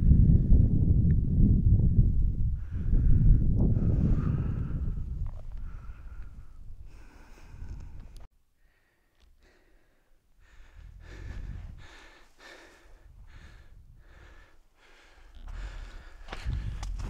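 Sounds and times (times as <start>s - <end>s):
heavy rhythmic breathing: 5.6s - 17.0s.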